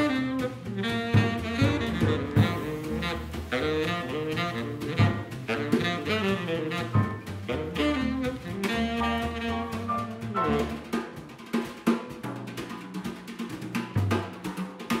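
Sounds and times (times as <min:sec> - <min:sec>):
saxophone melody: 0:00.0 - 0:11.2
double bass: 0:00.0 - 0:15.0
drums: 0:00.0 - 0:15.0
piano: 0:00.0 - 0:15.0.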